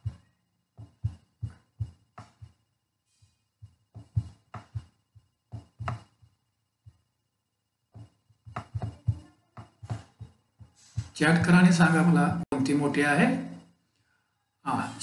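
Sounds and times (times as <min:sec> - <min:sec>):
soft dull thuds: 0:00.0 - 0:02.7, 0:03.6 - 0:07.1, 0:07.9 - 0:12.0.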